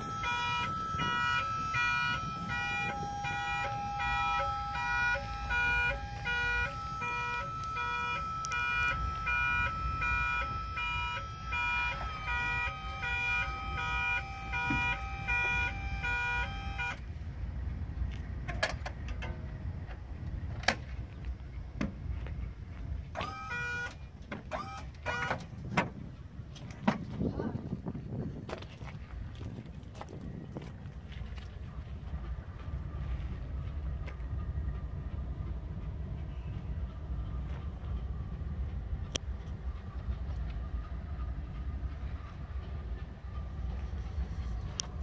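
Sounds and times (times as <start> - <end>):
electronic warning beeper: 0.0 - 17.0
sharp clicks and metal knocks: 18.4 - 21.0.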